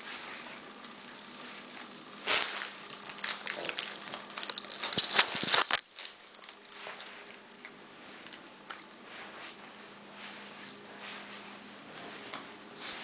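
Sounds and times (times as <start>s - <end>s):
rustling handling noises: 0.0s - 13.0s.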